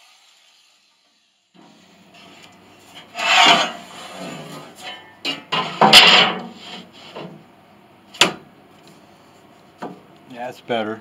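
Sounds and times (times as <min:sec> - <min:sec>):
metal plate scraping wood: 0:02.1 - 0:07.4.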